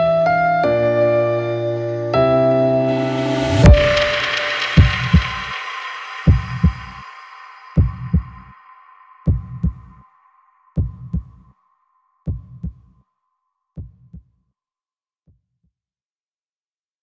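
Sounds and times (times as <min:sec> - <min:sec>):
high held tone: 0:02.6 - 0:11.4
deep bass double thump: 0:07.8 - 0:08.5.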